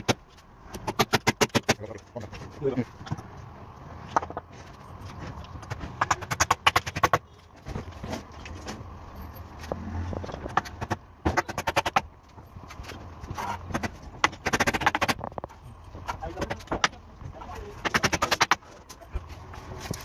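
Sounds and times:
hammer nailing wood: 0.0s - 2.0s, 5.6s - 7.2s, 10.4s - 12.1s, 13.4s - 15.3s, 17.8s - 18.6s.

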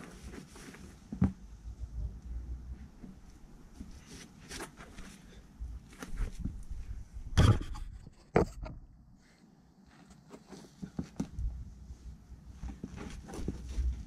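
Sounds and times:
knock and scrape: 7.4s - 8.8s.

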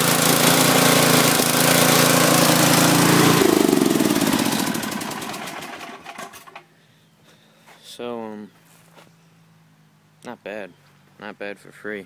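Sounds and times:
mower engine winding down: 0.0s - 6.6s.

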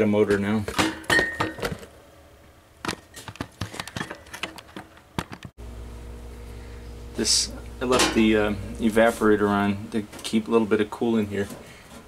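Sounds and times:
steady low hum: 5.6s - 11.9s.

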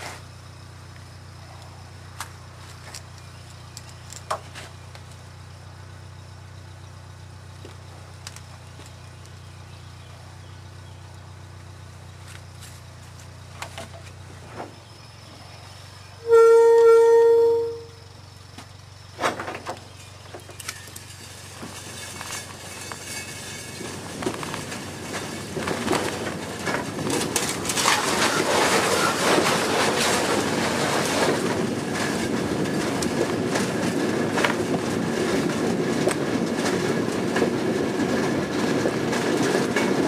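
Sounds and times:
rail motorcar engine idling: 0.0s - 40.0s
wheels rumbling on rails: 0.0s - 40.0s
horn blast: 16.2s - 18.0s.

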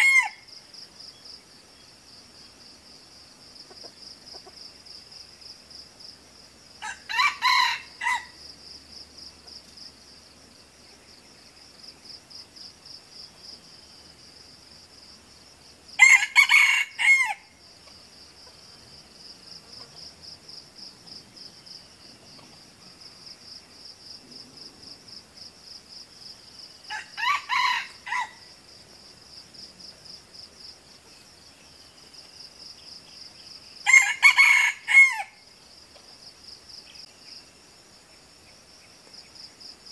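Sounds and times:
roosters crowing: 0.0s - 0.4s, 6.8s - 8.4s, 16.0s - 17.5s, 26.9s - 28.6s, 33.8s - 35.4s.

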